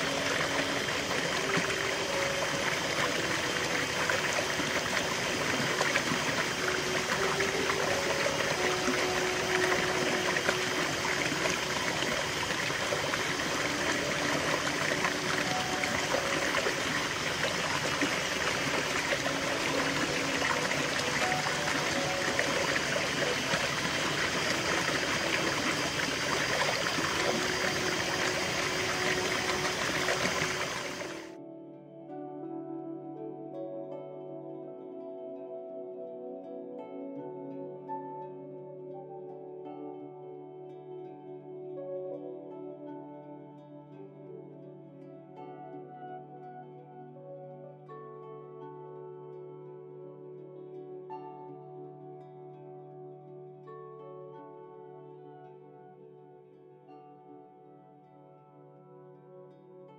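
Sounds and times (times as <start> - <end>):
stream rushing and gurgling: 0.0 - 31.4.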